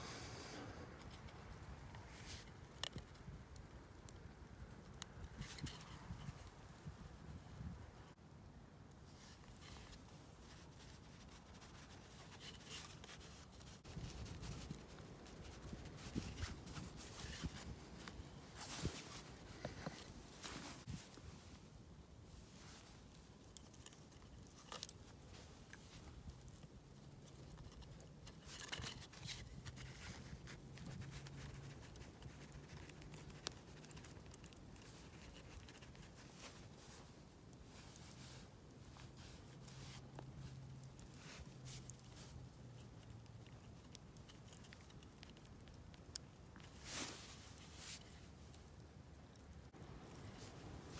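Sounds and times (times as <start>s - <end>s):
small clicks and crackles: 1.0s - 8.2s, 8.8s - 21.7s, 22.3s - 50.9s
hands rustling on wooden handle: 9.1s - 21.7s, 46.6s - 48.6s.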